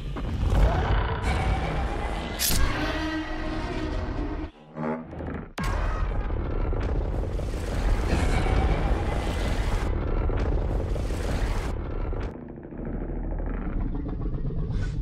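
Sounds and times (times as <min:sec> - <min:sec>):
deep continuous rumble: 0:05.3 - 0:15.0.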